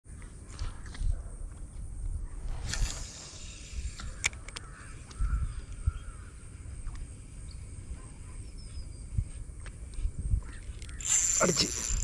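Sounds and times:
wind and handling thumps on microphone: 0.1 - 6.2, 8.6 - 11.2
faint bird calls: 2.2 - 12.0
small clicks: 2.6 - 5.8, 9.6 - 12.0.

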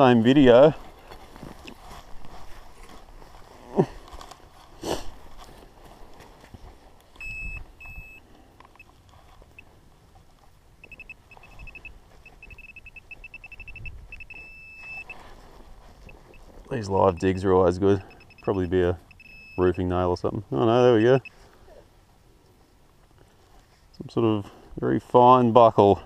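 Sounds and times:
metal detector beeping: 7.2 - 9.7, 10.8 - 15.3, 16.0 - 20.0, 20.7 - 21.4.

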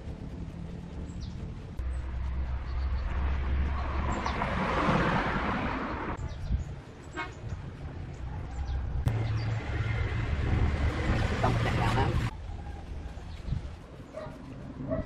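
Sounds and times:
birds chirping: 0.9 - 4.8, 5.6 - 10.3
vehicle passing by: 1.8 - 6.4, 7.8 - 12.3.

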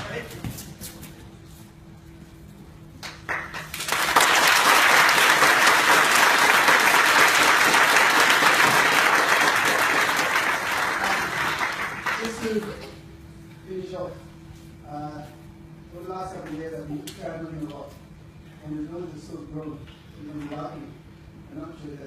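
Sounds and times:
audience applauding: 3.0 - 12.8.

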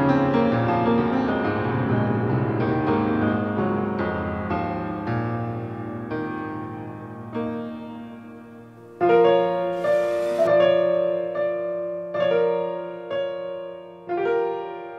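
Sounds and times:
slow piano chords: 0.0 - 14.9.

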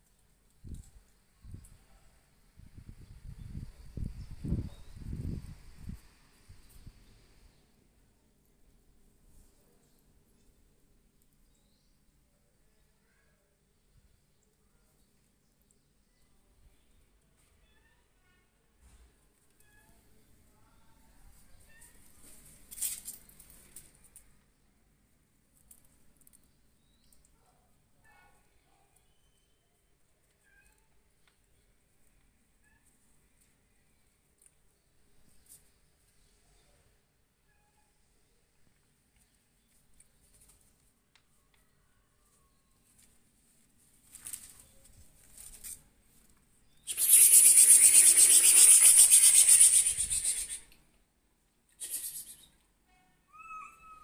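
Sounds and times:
kittens scuffling and playing: 21.1 - 24.5, 30.2 - 36.2, 39.0 - 41.6, 42.2 - 46.6
loud rasping rub: 46.9 - 50.6
faint scratching: 51.8 - 52.5.

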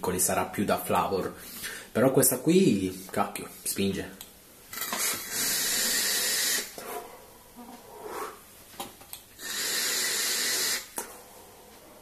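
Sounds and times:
soft breathing: 1.4 - 2.0, 6.8 - 8.6.

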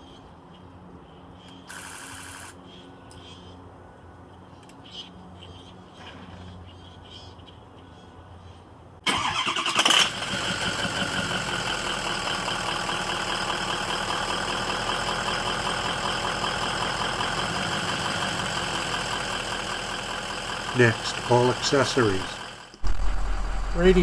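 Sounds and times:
diesel engine idling: 9.1 - 24.0.

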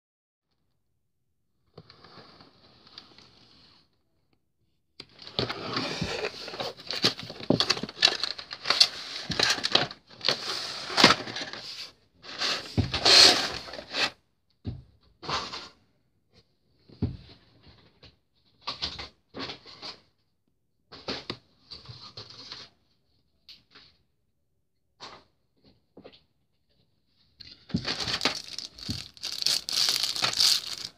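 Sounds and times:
plastic wrap and cardboard rustling: 5.2 - 14.1, 27.8 - 30.9.

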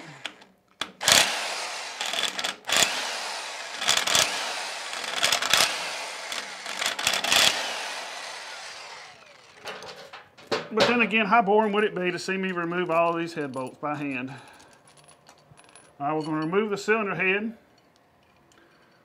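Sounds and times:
impact wrench rattling: 0.2 - 11.1.

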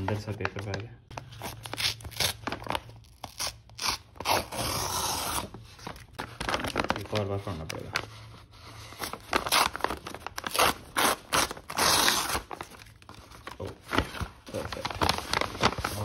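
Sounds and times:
paper tearing: 1.5 - 5.6, 9.3 - 12.9
paper crinkling and rustling: 5.3 - 16.0.

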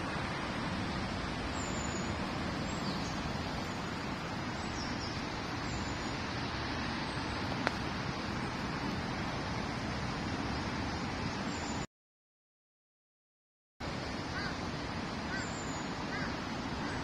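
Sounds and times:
outdoor background noise: 0.0 - 11.9, 13.8 - 17.0.

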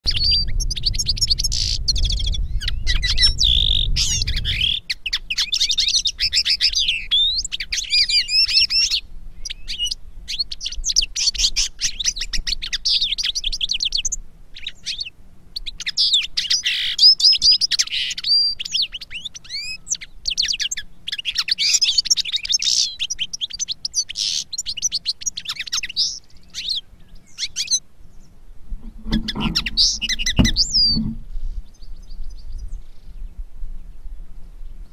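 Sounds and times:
finch song twittering: 0.0 - 33.4
low rumble: 0.1 - 4.8.

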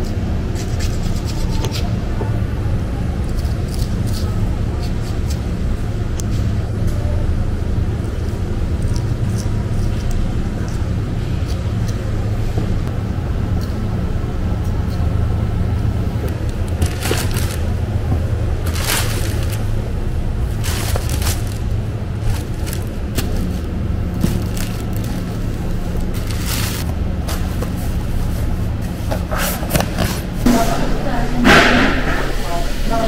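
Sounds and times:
low machinery hum: 0.0 - 33.0
plastic liner rustling: 16.6 - 17.8, 18.6 - 19.7, 20.5 - 27.7.

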